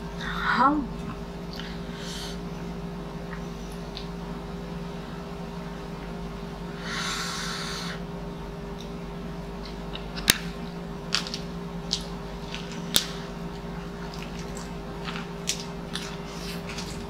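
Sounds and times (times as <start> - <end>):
steady low hum: 0.0 - 17.0
chewing: 11.2 - 17.0.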